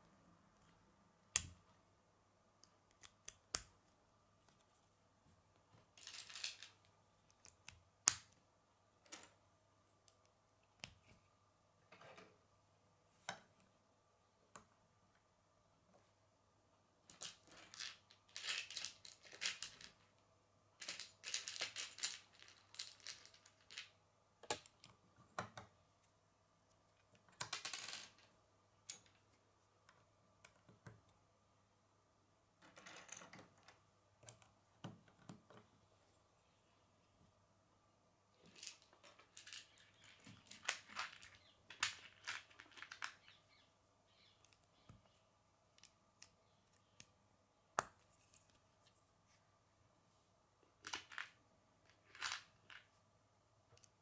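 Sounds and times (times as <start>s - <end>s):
plastic pieces clicking and clattering: 5.8s - 8.4s, 17.1s - 20.2s, 20.8s - 25.6s, 27.3s - 29.2s, 38.4s - 43.5s, 50.8s - 53.0s.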